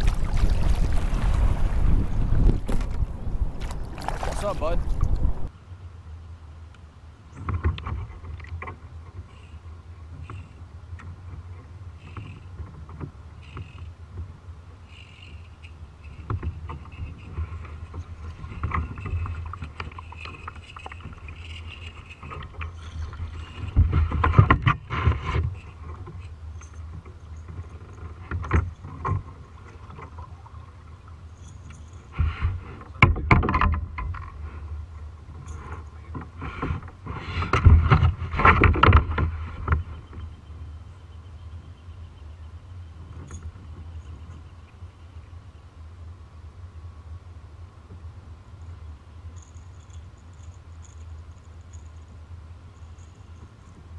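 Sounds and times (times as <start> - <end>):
low rumble: 0.0 - 5.5
water lapping against kayak hull: 0.0 - 5.5, 16.0 - 26.2, 35.6 - 40.4.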